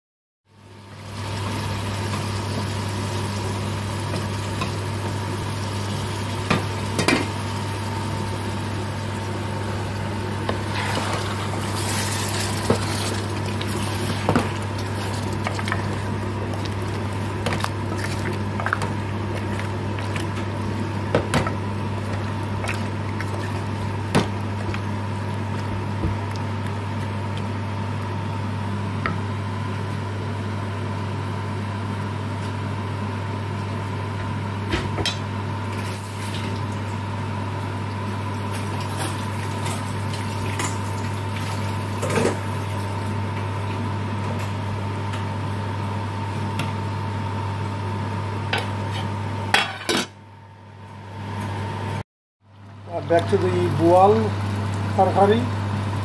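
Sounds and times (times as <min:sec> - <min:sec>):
steady low hum: 0:00.6 - 0:35.8.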